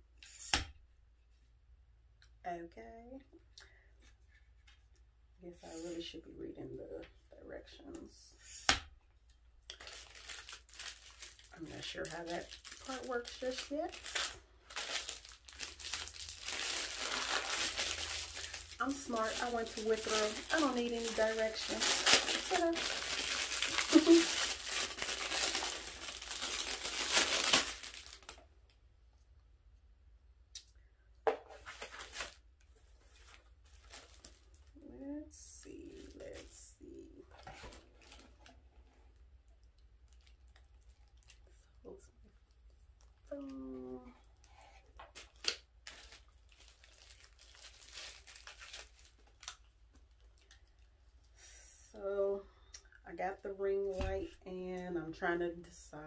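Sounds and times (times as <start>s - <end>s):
plastic bag crinkling: 9.7s - 28.4s, 33.0s - 34.8s, 40.0s - 41.6s, 45.1s - 50.9s.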